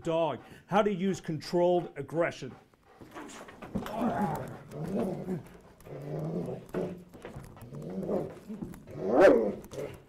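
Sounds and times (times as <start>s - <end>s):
dog growling and snarling: 3.2s - 10.0s.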